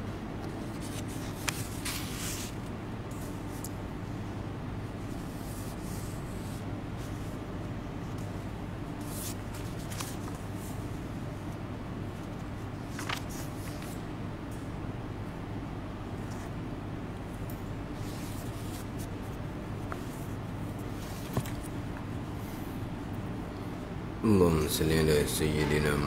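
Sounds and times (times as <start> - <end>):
book pages rustling: 0.5 - 3.7, 9.0 - 10.8, 12.2 - 14.0, 18.0 - 22.1.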